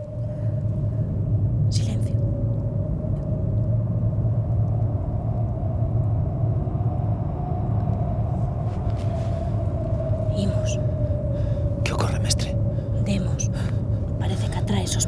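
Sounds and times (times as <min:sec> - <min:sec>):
low rumbling drone: 0:00.0 - 0:15.0
thin wavering tone: 0:00.0 - 0:15.0.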